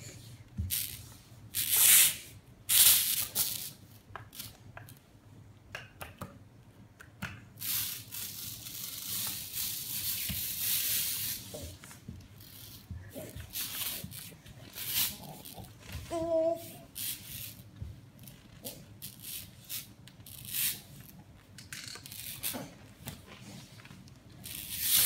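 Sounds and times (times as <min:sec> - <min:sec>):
lint roller tape tearing off foam: 0:00.7 - 0:04.6, 0:07.6 - 0:11.7, 0:12.4 - 0:16.0, 0:16.7 - 0:17.6, 0:18.2 - 0:21.1, 0:22.0 - 0:22.8, 0:24.4 - 0:25.0.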